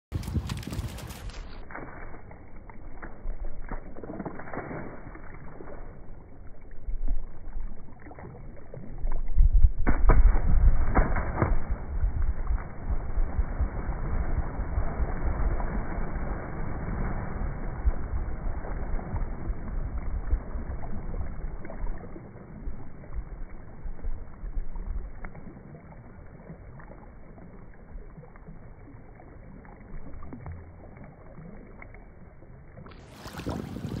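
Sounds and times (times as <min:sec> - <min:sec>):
scattered crackles: 0:00.1 - 0:06.0
slowed water churning: 0:00.1 - 0:34.0.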